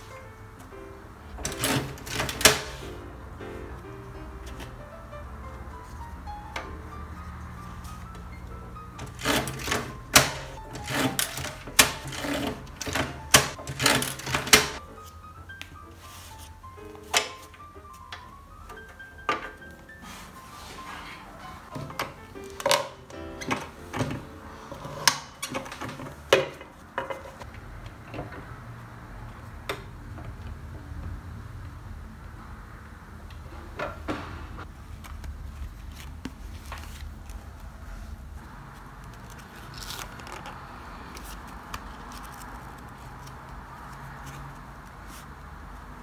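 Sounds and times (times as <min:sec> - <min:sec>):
paper rustling: 0:34.8 - 0:45.4.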